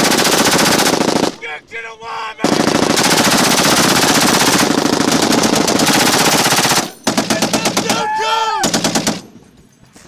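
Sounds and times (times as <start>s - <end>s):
machine gun automatic bursts: 0.0s - 1.4s, 2.4s - 8.0s, 8.6s - 9.2s.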